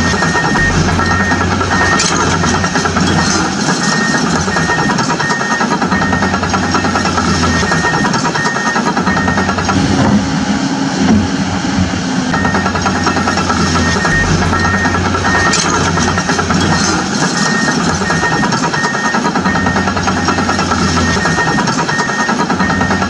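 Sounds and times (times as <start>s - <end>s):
background music with repeating pattern: 0.0s - 5.3s, 13.2s - 21.6s
low engine-like hum: 0.0s - 23.0s.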